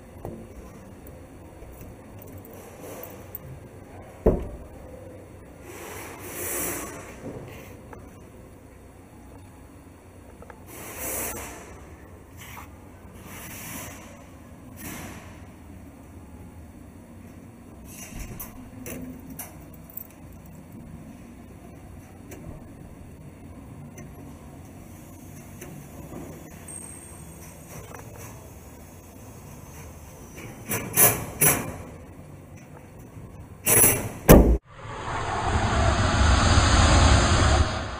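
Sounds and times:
steady low hum: 34.6s - 37.9s
whoosh of noise: 34.6s - 37.9s.

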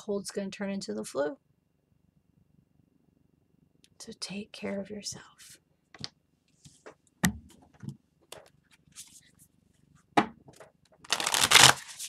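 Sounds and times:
cards riffling: 11.1s - 12.0s.

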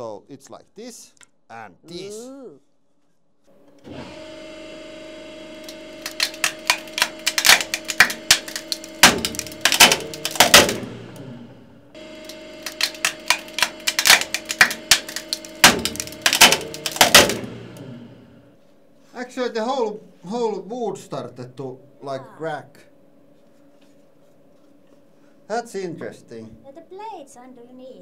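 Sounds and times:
hydraulic press humming: 3.5s - 18.6s
wood cracking and splitting: 5.6s - 11.1s, 12.2s - 17.8s.

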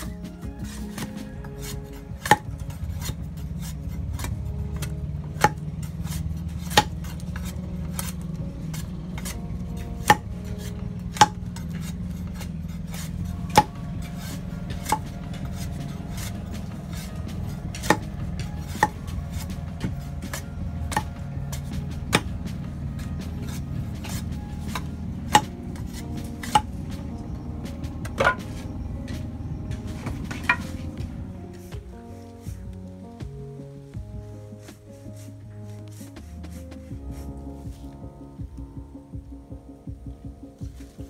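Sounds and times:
steady low hum: 0.0s - 41.0s
machete chopping wooden pole: 2.2s - 9.4s, 10.0s - 27.2s.

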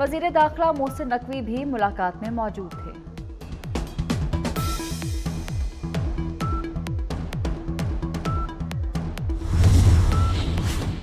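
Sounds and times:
electronic news music: 4.4s - 11.0s
rush of noise: 9.4s - 11.0s.

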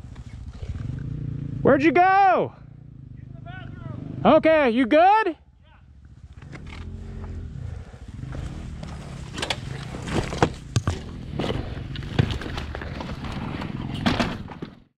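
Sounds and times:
dirt bike engine idling: 0.0s - 13.4s
knocks and clatters on rocks: 9.3s - 13.4s.

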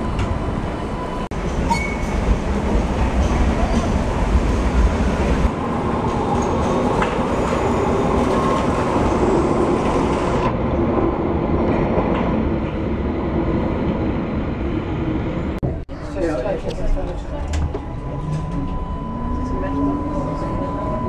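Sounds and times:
tram wheels rumbling on rails: 0.0s - 15.8s.

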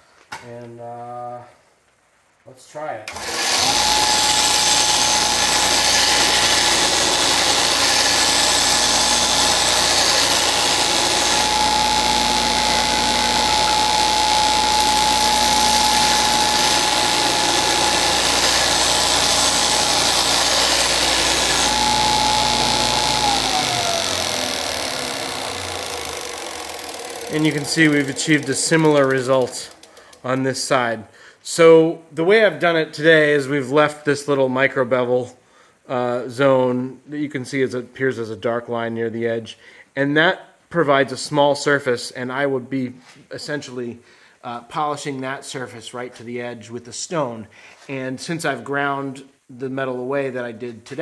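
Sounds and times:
metal grinding on sander belt: 3.1s - 30.0s
belt sander whining: 3.1s - 30.3s.

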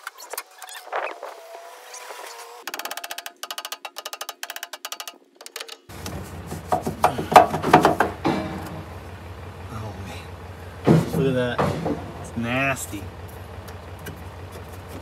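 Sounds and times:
metallic knocks and rattles: 2.7s - 9.6s, 10.7s - 15.0s.

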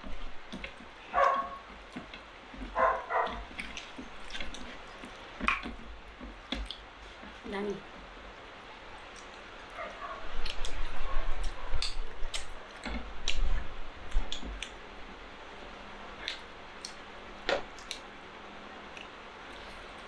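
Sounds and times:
wet chewing and lip smacks: 0.5s - 7.4s, 9.0s - 9.8s, 10.4s - 14.8s, 16.2s - 18.1s, 18.9s - 20.0s
sharp mouth clicks: 11.4s - 12.5s, 16.2s - 18.0s.

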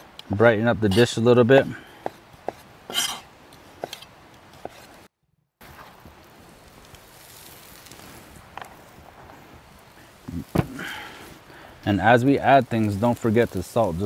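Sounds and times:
faint steady hiss: 0.0s - 14.0s
knife scraping cutting board: 2.0s - 5.0s.

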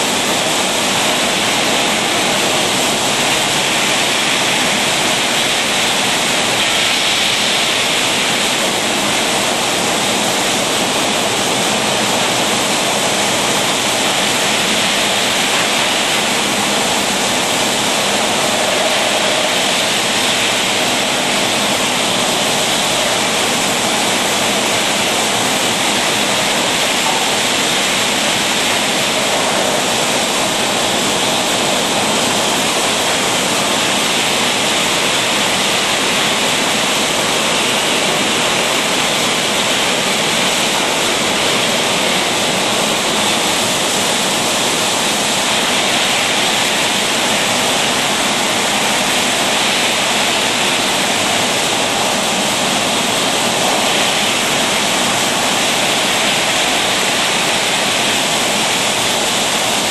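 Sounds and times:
steady rushing hiss: 0.0s - 59.9s.

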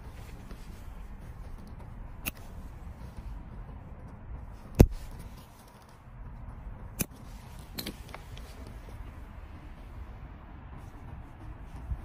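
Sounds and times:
side cutters snipping: 1.6s - 2.6s, 4.1s - 5.9s, 6.9s - 8.5s.

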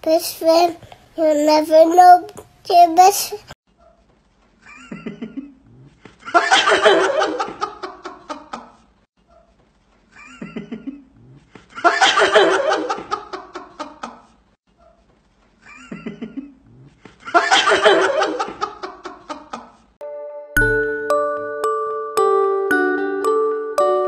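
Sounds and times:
chuckles: 4.6s - 9.5s, 10.1s - 15.0s, 15.6s - 19.8s
loud burst of laughter: 17.3s - 19.6s.

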